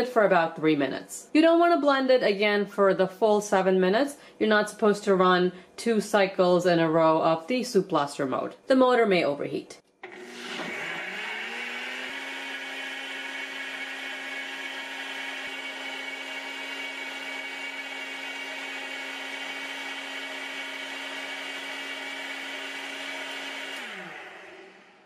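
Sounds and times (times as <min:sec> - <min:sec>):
blender motor whining: 0:10.0 - 0:25.0.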